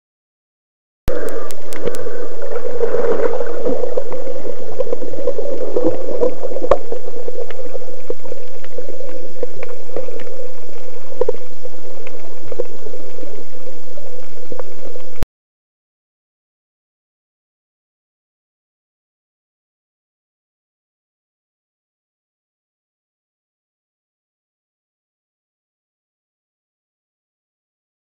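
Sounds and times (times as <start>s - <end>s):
rushing hum of water underwater: 1.1s - 15.2s.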